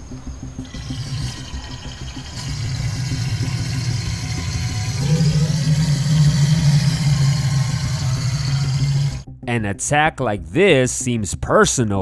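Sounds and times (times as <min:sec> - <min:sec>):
crocodile hissing and growling: 0:00.6 - 0:09.3.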